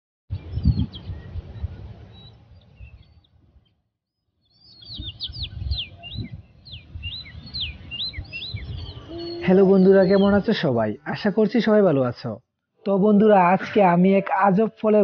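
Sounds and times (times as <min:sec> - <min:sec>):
small birds chirping: 0:00.3 - 0:03.8, 0:04.4 - 0:12.4.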